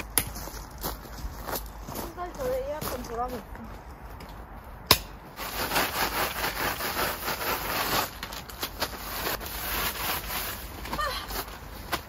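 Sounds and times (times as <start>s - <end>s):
cloth wiping tent floor sheet: 5.4s - 12.0s.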